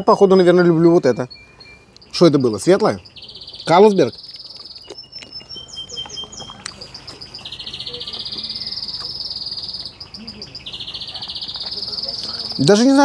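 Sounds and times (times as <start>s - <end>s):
bird chirps: 0.0s - 13.0s
insects trilling: 0.2s - 13.0s.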